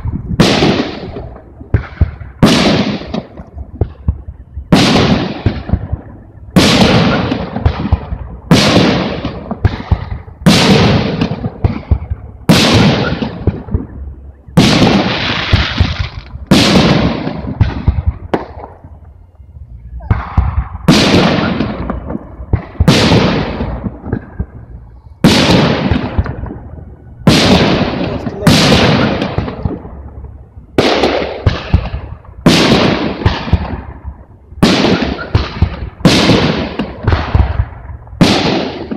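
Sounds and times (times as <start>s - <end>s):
firework shells bursting: 0.0s - 38.9s.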